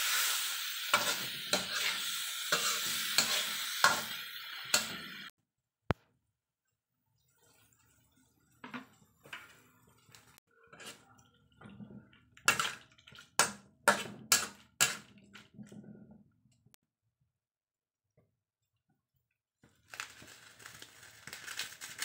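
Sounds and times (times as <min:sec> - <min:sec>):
metal spatula scraping pan: 0:00.0 - 0:05.3, 0:13.9 - 0:15.5.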